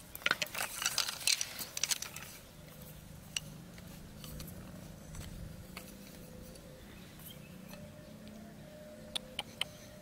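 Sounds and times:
bamboo sticks clicking together: 0:00.1 - 0:02.3.

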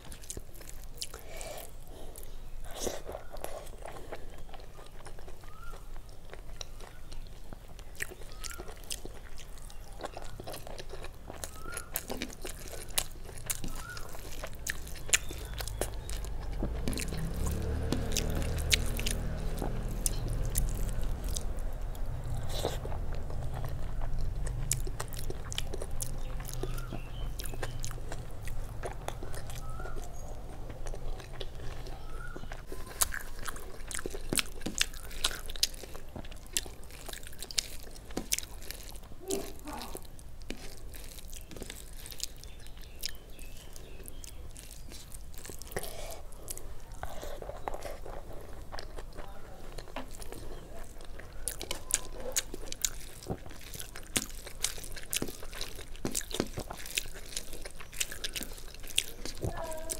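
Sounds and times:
chewing and mouth clicks: 0:00.0 - 0:59.9
low rumble: 0:15.6 - 0:31.9.

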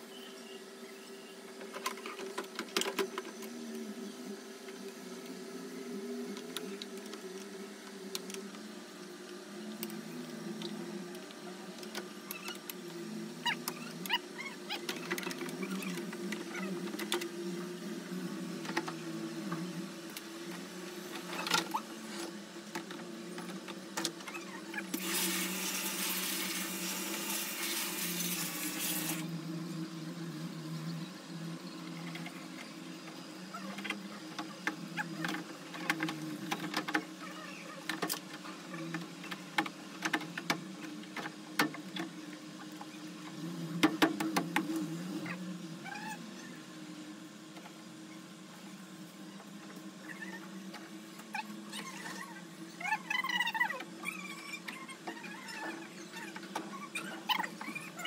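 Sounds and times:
hiss: 0:24.9 - 0:29.3.

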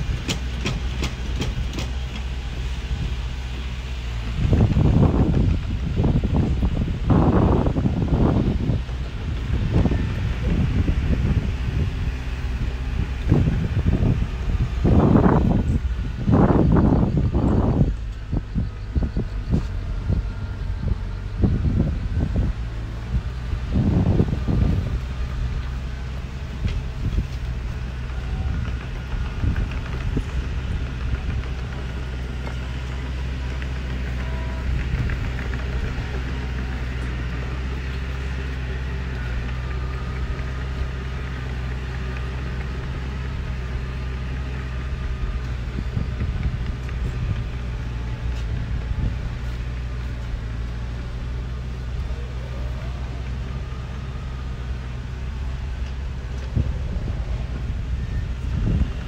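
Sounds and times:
heavy machinery diesel engine droning: 0:00.0 - 0:59.0.

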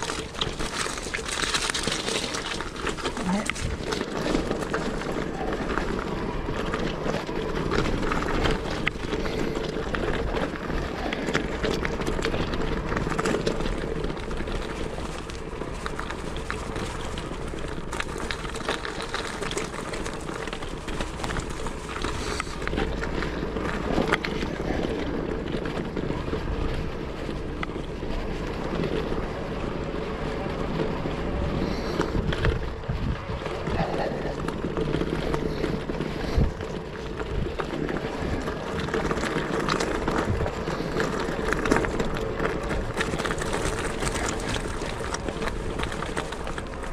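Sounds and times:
tyre and road noise: 0:00.0 - 0:46.9
wind rushing over microphone: 0:26.1 - 0:34.8.

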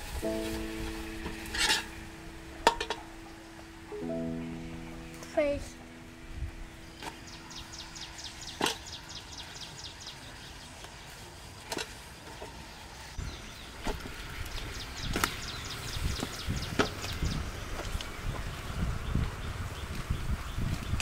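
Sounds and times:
high chirping: 0:00.0 - 0:10.4.

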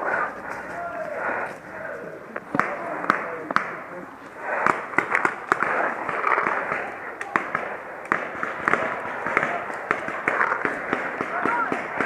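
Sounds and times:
paintball markers firing: 0:04.5 - 0:12.0.

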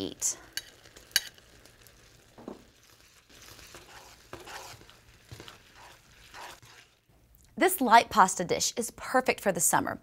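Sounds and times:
wet stirring of noodles: 0:00.5 - 0:07.5.

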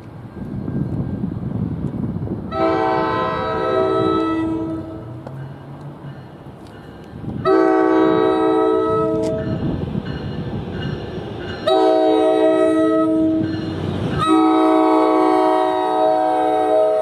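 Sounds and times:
train rumble: 0:00.0 - 0:17.0
train air horn blasts: 0:02.5 - 0:05.2, 0:07.4 - 0:09.6, 0:11.6 - 0:17.0.

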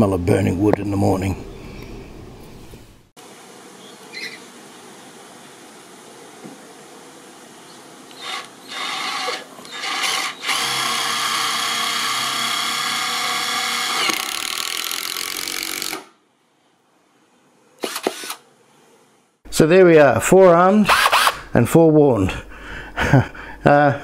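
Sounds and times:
cordless driver motor whine: 0:08.1 - 0:15.9
screw driving into timber: 0:08.1 - 0:16.1, 0:17.8 - 0:18.4.

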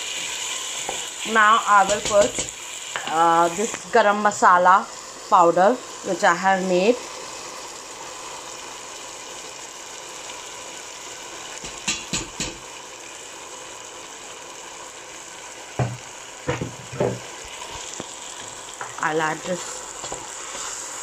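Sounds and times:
potatoes sizzling in oil: 0:00.0 - 0:21.0
spatula scraping a pan: 0:19.4 - 0:21.0.

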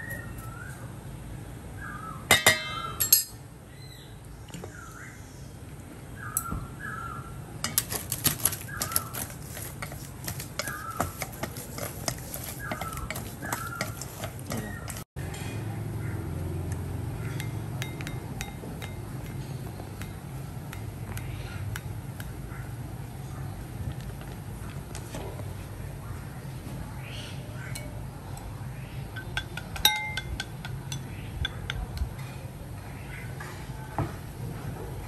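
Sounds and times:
bird chirps: 0:01.8 - 0:03.0, 0:03.7 - 0:07.4, 0:08.5 - 0:09.3, 0:10.5 - 0:11.6, 0:12.2 - 0:15.0
utensils clinking against dishes: 0:02.3 - 0:03.4, 0:07.6 - 0:15.8, 0:17.2 - 0:21.9, 0:27.6 - 0:28.0, 0:29.1 - 0:32.4.

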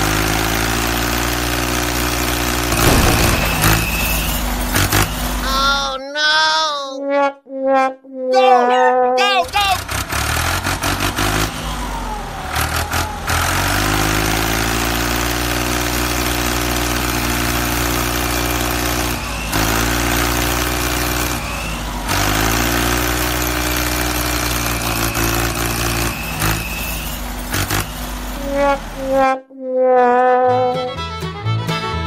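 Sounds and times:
tractor engine running: 0:00.0 - 0:05.8, 0:09.8 - 0:29.0.

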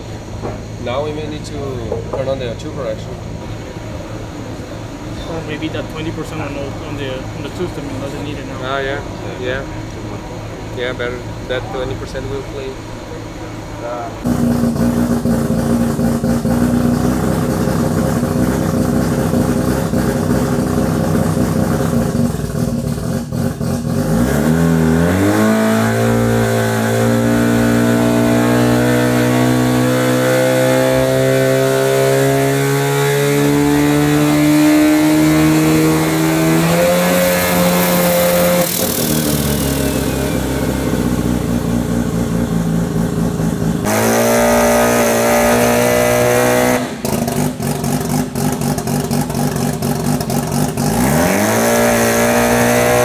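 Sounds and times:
rotary engine revving under load: 0:14.2 - 0:53.0.

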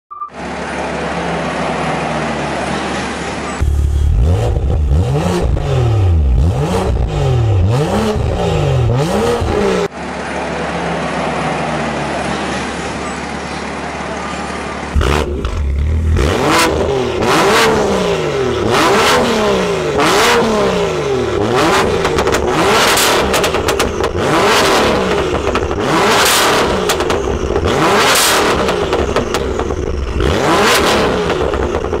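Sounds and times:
car engine revving: 0:00.5 - 0:14.1, 0:14.8 - 0:32.0
exhaust cracks: 0:14.9 - 0:32.0.

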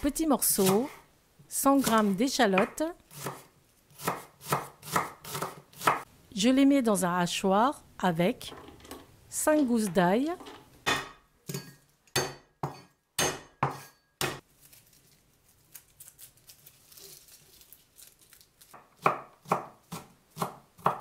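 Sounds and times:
knife chopping on board: 0:02.6 - 0:06.0, 0:12.2 - 0:14.4, 0:19.0 - 0:21.0
garlic skins peeled rustling: 0:14.4 - 0:19.0.

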